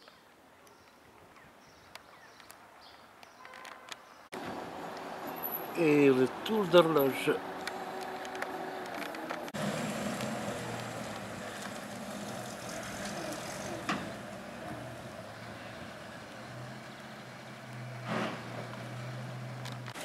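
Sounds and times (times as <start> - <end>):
truck engines humming: 4.4 - 20.0.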